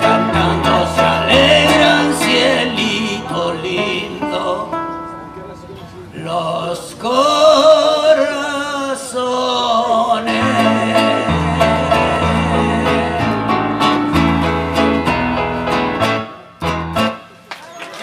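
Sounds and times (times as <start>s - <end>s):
man singing: 0.0s - 5.0s, 6.1s - 14.4s
acoustic guitar strumming: 0.0s - 5.9s, 9.8s - 17.4s
electric keyboard: 10.4s - 17.4s.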